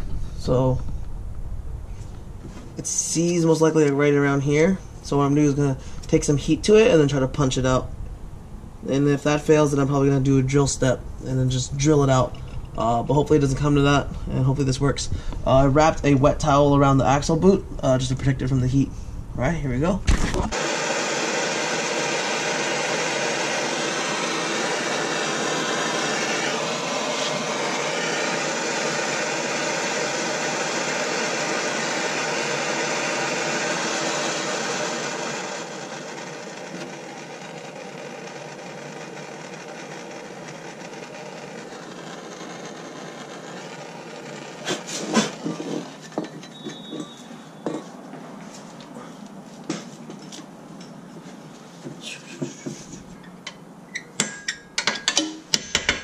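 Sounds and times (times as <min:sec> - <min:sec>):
gas torch hissing: 0:20.4 - 0:47.3
sharp metal knocks: 0:54.2 - 0:56.0.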